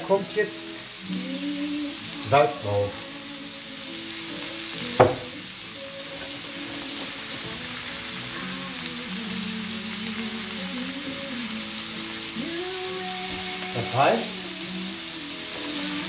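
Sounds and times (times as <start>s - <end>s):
background music: 0.0s - 16.0s
vegetables sizzling in a pan: 0.0s - 16.0s
sharp knock: 5.0s - 5.3s.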